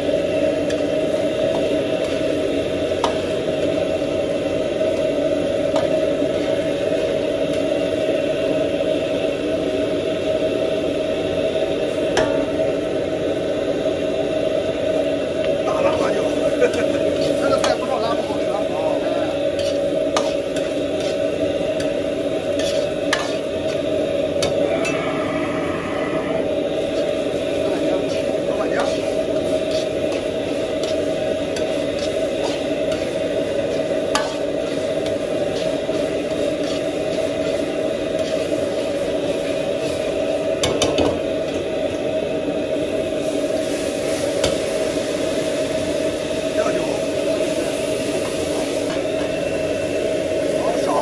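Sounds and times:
food sizzling: 0.0s - 51.0s
kitchen hum: 0.0s - 51.0s
burner roar: 22.5s - 28.9s.

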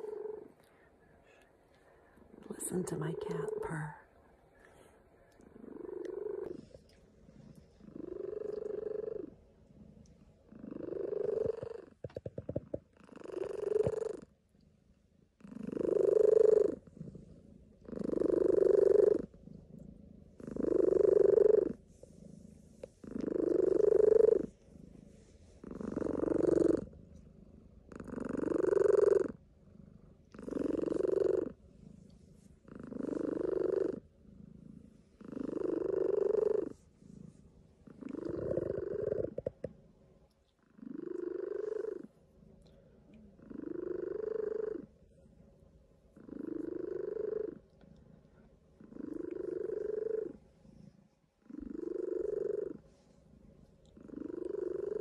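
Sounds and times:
cat purring: 0.0s - 55.0s.

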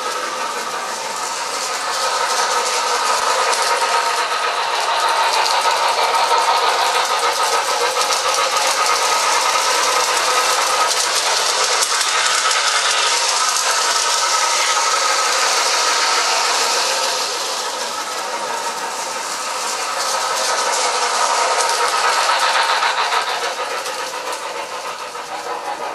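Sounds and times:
model train motor whine: 0.0s - 25.9s
wheels clattering on rails: 0.0s - 25.9s.

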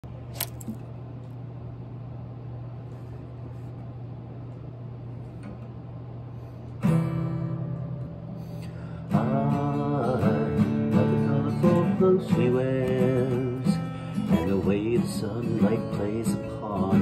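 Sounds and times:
steady low hum: 0.0s - 17.0s
acoustic guitar chord strummed: 6.8s - 17.0s.

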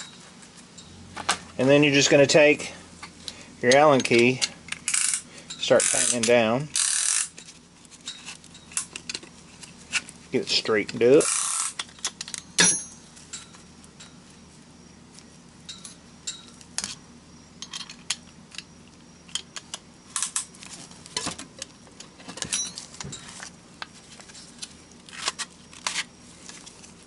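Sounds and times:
light metallic clicks and clinks: 15.6s - 16.9s.

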